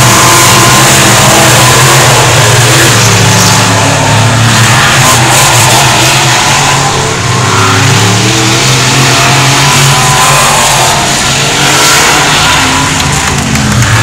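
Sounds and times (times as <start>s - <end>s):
race car engines revving: 0.0s - 14.0s.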